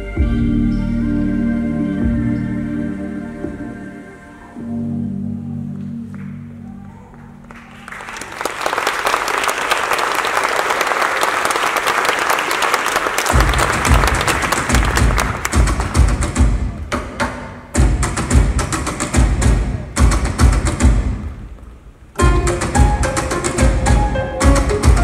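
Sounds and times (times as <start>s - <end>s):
audience applause: 7.2s - 16.2s.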